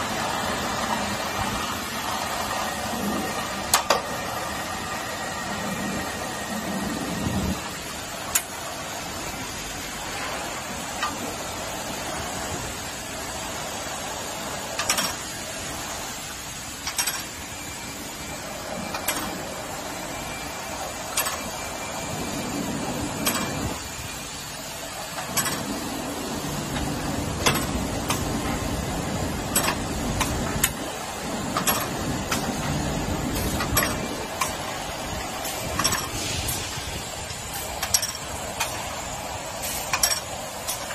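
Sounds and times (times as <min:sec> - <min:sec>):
machine whirring: 0:00.0 - 0:40.9
sharp clicks and clinks: 0:16.8 - 0:17.3, 0:37.8 - 0:38.9, 0:39.7 - 0:40.9.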